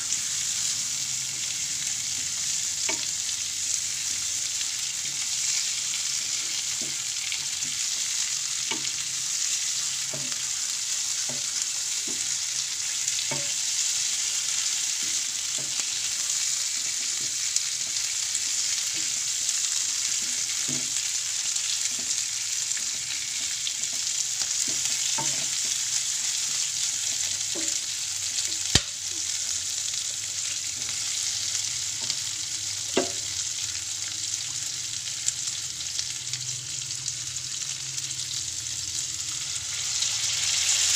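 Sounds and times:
chicken sizzling in a frying pan: 0.0 - 40.9
spatula scraping and knocking pan: 21.9 - 28.9.

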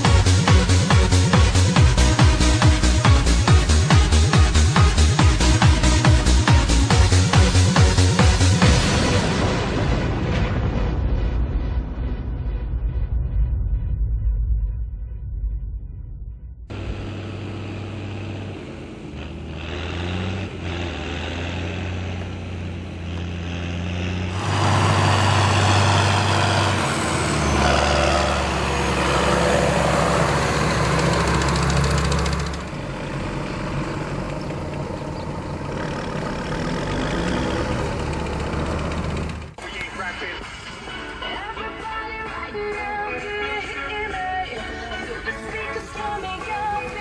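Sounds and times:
tractor diesel engine running: 0.0 - 9.5, 16.7 - 40.3.

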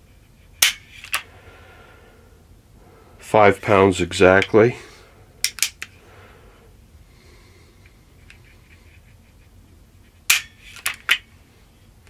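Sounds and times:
pistol hammer snapping: 5.4 - 5.9.

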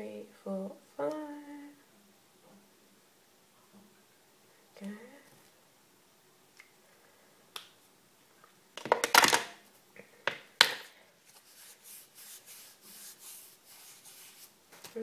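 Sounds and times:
clothing rustle: 11.2 - 15.0
soft brushing: 11.2 - 15.0.

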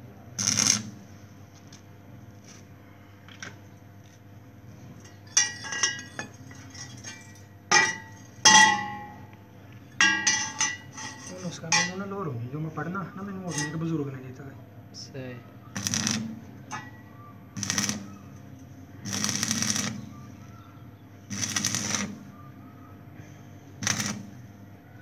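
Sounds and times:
welding crackle: 0.4 - 1.0, 15.8 - 16.9, 17.6 - 18.3, 19.0 - 20.1, 21.3 - 22.3, 23.8 - 24.4
metal frame clanking and ringing: 5.1 - 9.2, 10.0 - 12.1.

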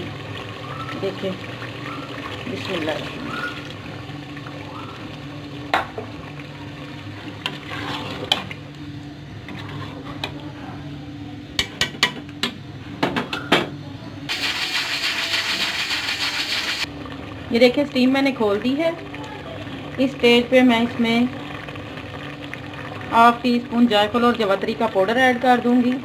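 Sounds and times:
water pouring into a pot: 0.0 - 8.3, 14.3 - 26.0
pressure cooker hissing steam: 14.3 - 16.9.

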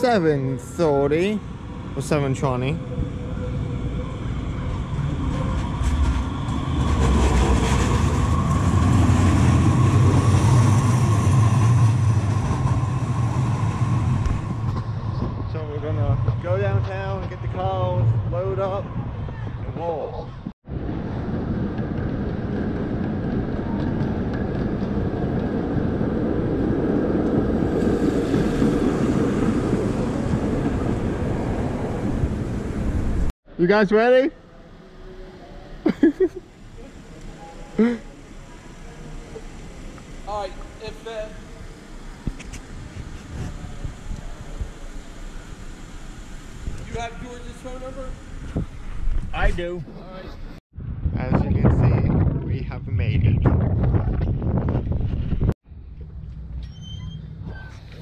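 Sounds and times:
light rail train passing: 0.0 - 19.4, 20.7 - 33.3, 34.4 - 48.5
streetcar rumbling past: 0.0 - 19.6, 20.7 - 33.3, 34.4 - 48.8
traffic: 0.0 - 33.3, 34.3 - 50.6.

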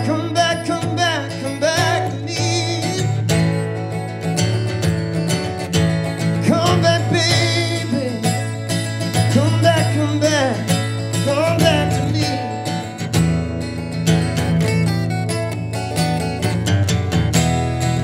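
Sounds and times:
man singing: 0.0 - 3.4, 6.3 - 13.0
acoustic guitar strumming: 0.0 - 18.0.

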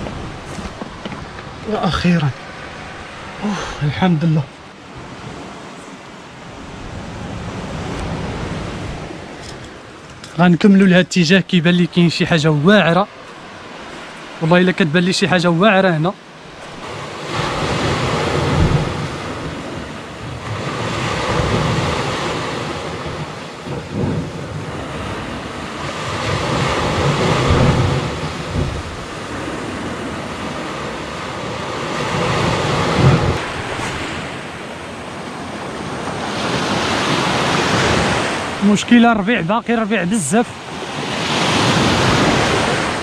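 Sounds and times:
wind rumbling on microphone: 0.0 - 15.5, 16.3 - 43.0
waves breaking on rocky shore: 0.0 - 43.0.

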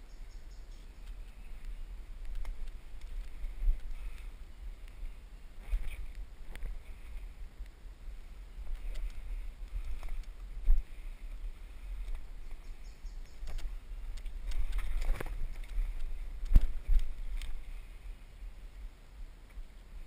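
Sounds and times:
wind and handling rumble: 0.0 - 20.0.

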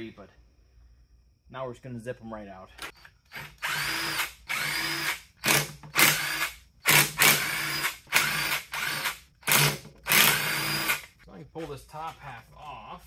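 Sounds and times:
cordless drill whining: 2.8 - 11.2.

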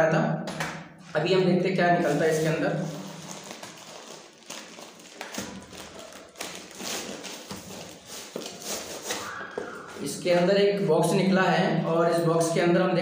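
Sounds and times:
plastic packaging crinkling: 2.0 - 9.4.

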